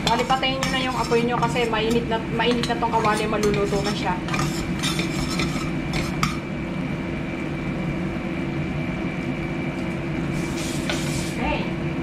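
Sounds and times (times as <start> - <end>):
spatula scraping frying pan: 0.0 - 6.4, 10.3 - 11.4
constant hum: 0.0 - 12.0.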